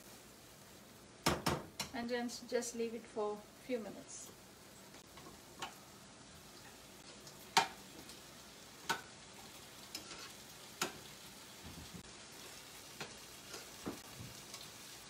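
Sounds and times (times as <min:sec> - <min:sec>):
curry sizzling in a frying pan: 0:00.0 - 0:15.0.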